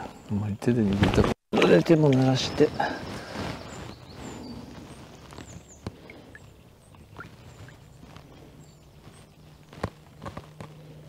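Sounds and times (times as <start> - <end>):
water dribbling and tapping: 5.8 - 7.8
water splashing: 5.9 - 7.8.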